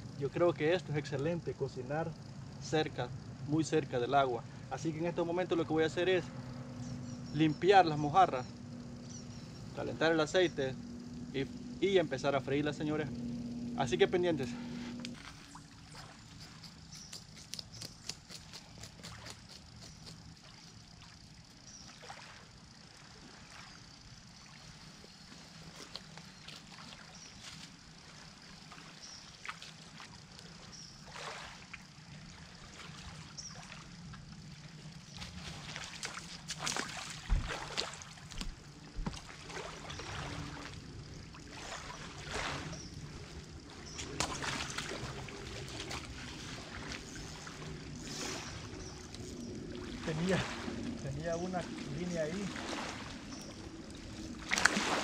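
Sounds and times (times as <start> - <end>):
lake water lapping: 5.0 - 55.0.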